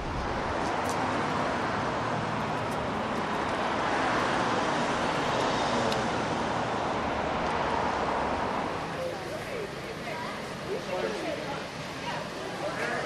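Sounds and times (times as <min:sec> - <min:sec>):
cars passing: 0:00.0 - 0:13.0
stroller wheels rolling on concrete: 0:00.0 - 0:13.0.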